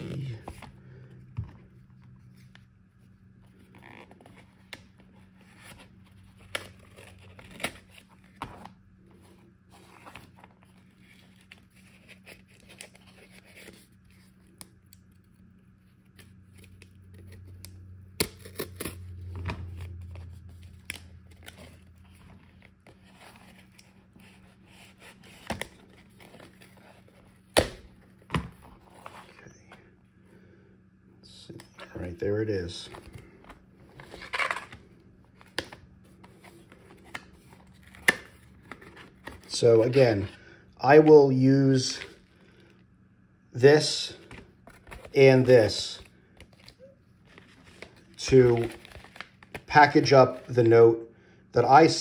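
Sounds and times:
cardboard package rustling: 0:46.2 - 0:50.5.

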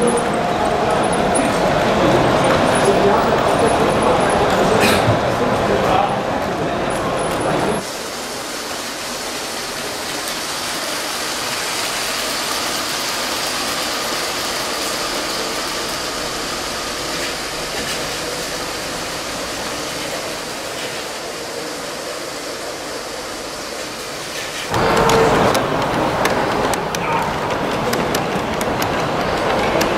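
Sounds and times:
toy train motors whirring: 0:09.0 - 0:29.9.

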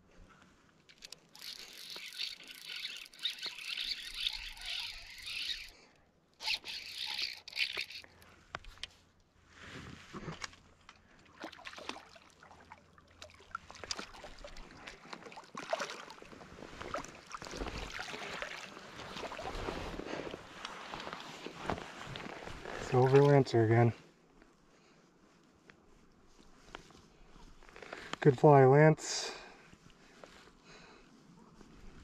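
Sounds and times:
water splashing and sloshing: 0:10.2 - 0:23.5.

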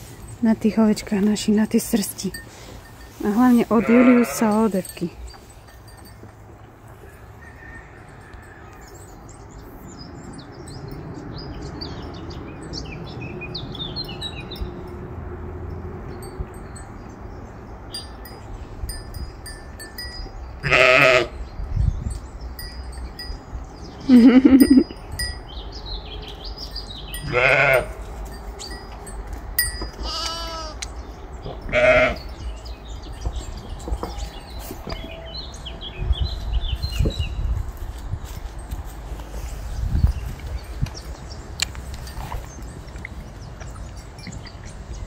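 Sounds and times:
sheep and goats bleating: 0:03.5 - 0:04.7, 0:20.6 - 0:21.4, 0:27.2 - 0:28.0, 0:29.9 - 0:30.9, 0:31.7 - 0:32.3.

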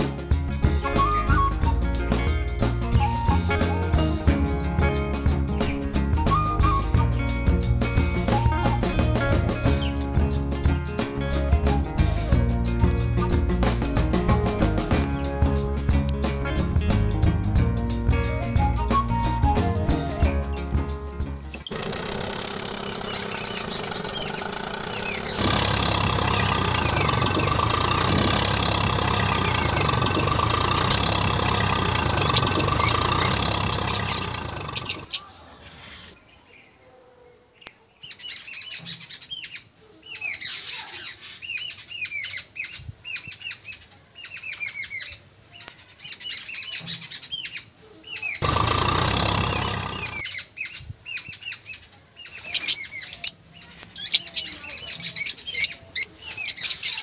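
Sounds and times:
small birds chirping: 0:21.4 - 0:57.0.

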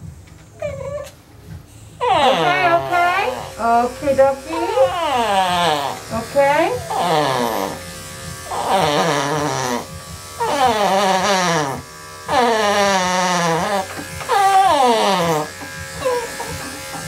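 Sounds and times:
dog crying out: 0:00.6 - 0:01.1, 0:02.0 - 0:03.5, 0:04.5 - 0:06.0, 0:10.4 - 0:16.5
electric clippers buzzing: 0:01.5 - 0:17.0.

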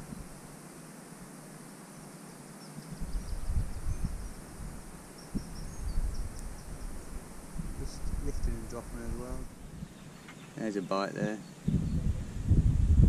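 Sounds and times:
wind buffeting microphone: 0:02.9 - 0:10.1, 0:11.2 - 0:13.0.

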